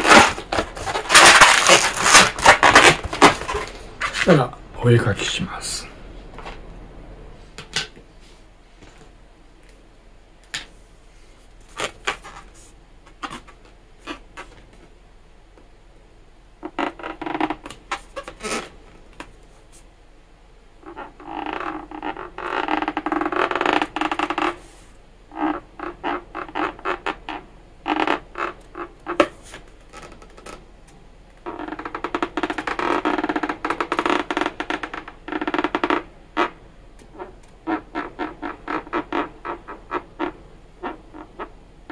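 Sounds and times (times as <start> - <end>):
marker squeaking on balloon: 0.0 - 4.3, 11.7 - 14.6, 16.6 - 18.7, 20.8 - 30.6, 31.4 - 41.9.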